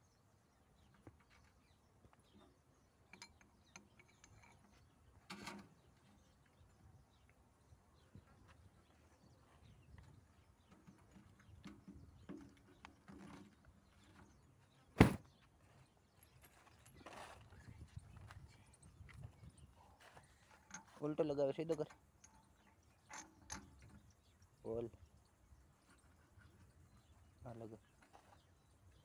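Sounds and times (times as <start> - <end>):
faint clicks and clinks: 3.0 - 6.6, 16.1 - 24.6.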